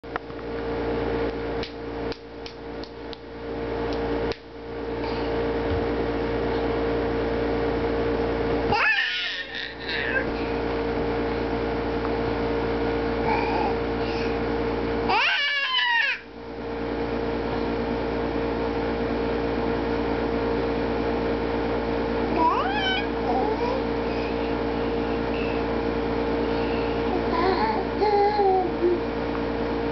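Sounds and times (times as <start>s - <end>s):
steady background hum: 0.0s - 29.9s
baby clapping hands: 1.6s - 3.3s
baby squealing: 8.7s - 10.3s, 15.1s - 16.3s, 22.3s - 23.9s
baby babbling: 8.7s - 10.6s, 13.2s - 14.2s, 22.3s - 24.4s, 27.1s - 29.0s.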